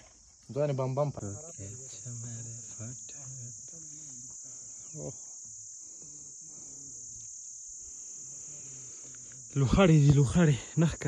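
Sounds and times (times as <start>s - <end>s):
insects shrilling: 0.0s - 11.0s.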